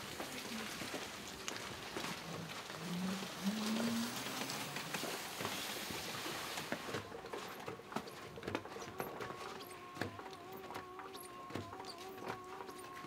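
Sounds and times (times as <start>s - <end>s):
outdoor hiss: 0.0s - 6.9s.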